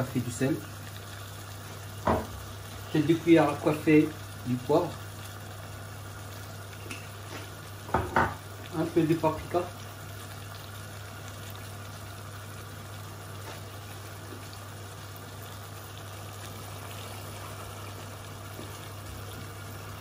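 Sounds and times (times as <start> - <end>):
sauce bubbling in a pot: 0.0 - 20.0.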